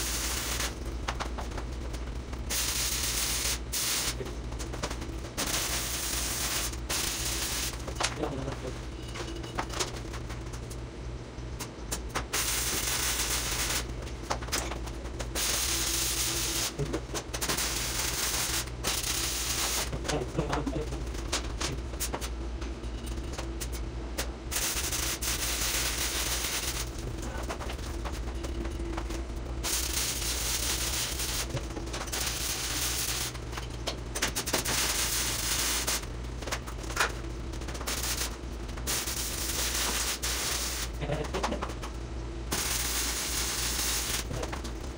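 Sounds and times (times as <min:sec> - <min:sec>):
welding arc crackling: 0:00.0 - 0:08.8, 0:09.5 - 0:44.9
steady low hum: 0:00.0 - 0:44.9.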